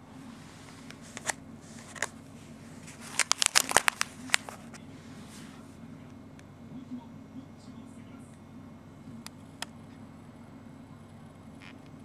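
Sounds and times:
plastic bag crinkling: 2.8 - 4.7.

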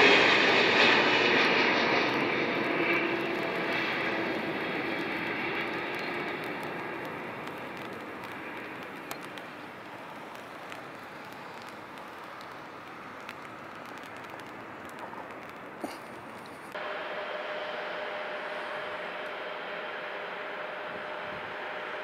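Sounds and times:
distant jet engine: 0.0 - 22.0
faint ticks: 5.2 - 16.8.

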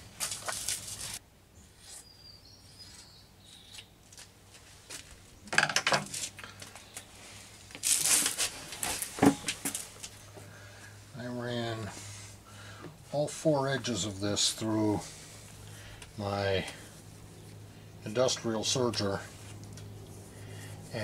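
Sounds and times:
steady low hum: 6.1 - 21.0.

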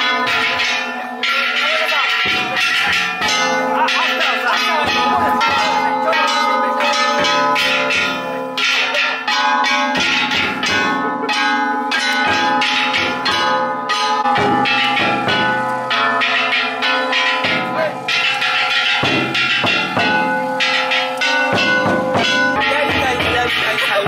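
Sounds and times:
brass gongs clanging: 0.0 - 24.0
big drum beating: 1.6 - 24.0.

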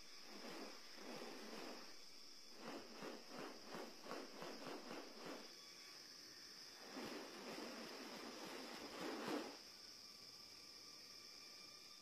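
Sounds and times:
insects hissing: 0.0 - 12.0.

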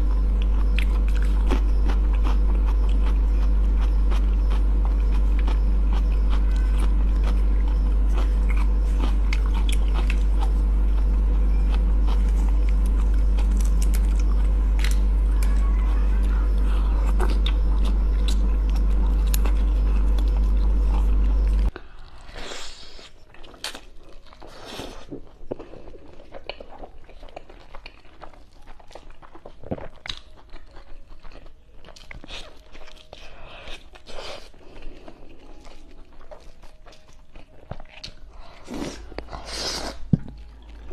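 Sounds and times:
loud steady low hum: 0.0 - 22.4, 38.2 - 40.9
chewing and mouth noises: 0.0 - 40.9.

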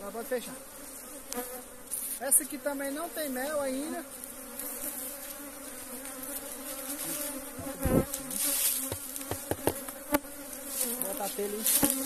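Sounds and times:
honey bees buzzing: 0.0 - 12.0
thump: 8.9 - 9.8
light knocks: 8.9 - 9.9.

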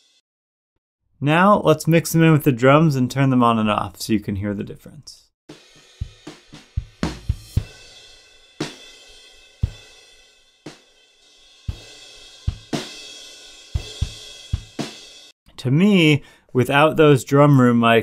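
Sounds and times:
drum kit heavy groove: 5.5 - 15.4.

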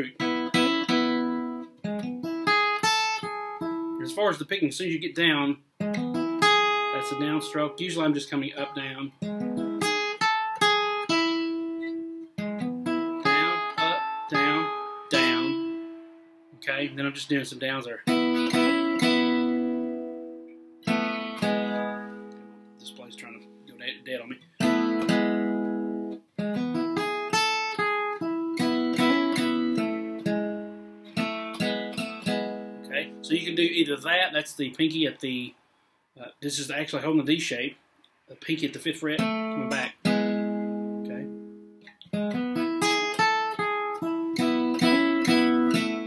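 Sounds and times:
acoustic guitar picked run: 0.0 - 35.5, 38.5 - 46.0.

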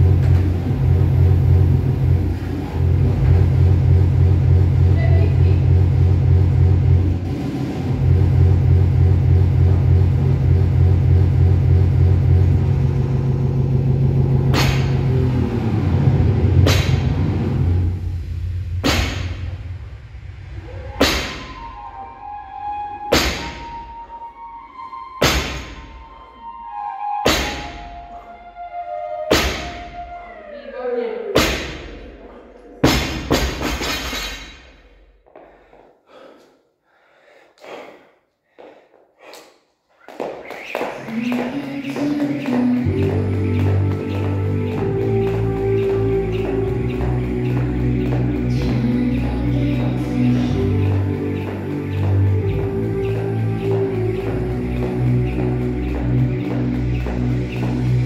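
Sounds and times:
low steady rumble: 0.0 - 21.6, 42.9 - 58.0
person breathing: 35.3 - 40.1.

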